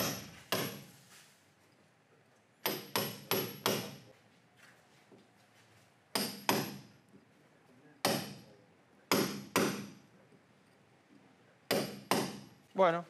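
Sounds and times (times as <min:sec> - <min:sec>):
hammer striking chisel into cement: 0:00.0 - 0:01.0, 0:02.6 - 0:04.1, 0:06.1 - 0:07.0, 0:08.0 - 0:08.5, 0:09.1 - 0:10.0, 0:11.7 - 0:12.6.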